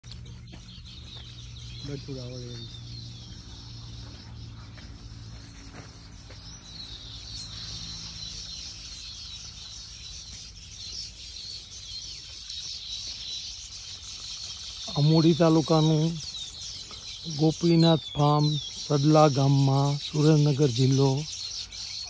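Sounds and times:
steady low hum: 0.0 - 21.8
small birds chirping: 0.0 - 22.0.

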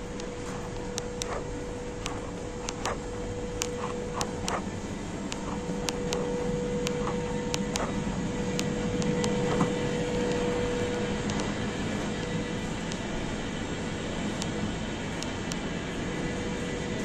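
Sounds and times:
air conditioning hum: 0.0 - 17.0
constant mid-pitched tone: 0.0 - 17.0
sharp clicks and taps: 0.1 - 1.4, 2.0 - 4.7, 5.3 - 10.5, 11.2 - 13.1.

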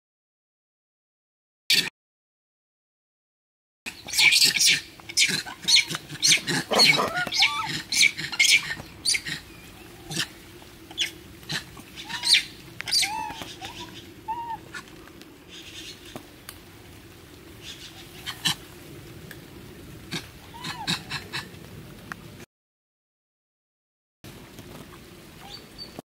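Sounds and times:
monkeys squealing: 3.9 - 14.8, 20.5 - 21.3.

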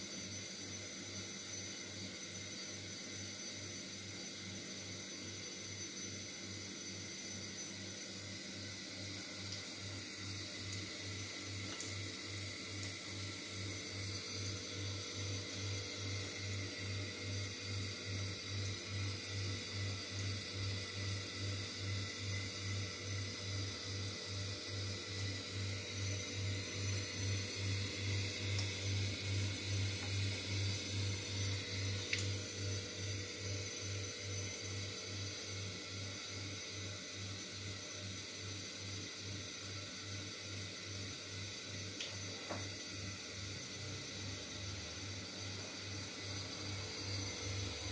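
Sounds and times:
tap water running into sink: 9.0 - 16.0, 24.7 - 32.5.

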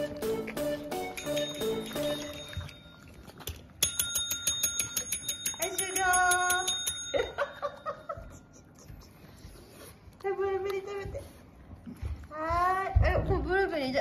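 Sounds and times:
desk call bell ringing rapidly: 1.2 - 2.6, 3.8 - 8.1.

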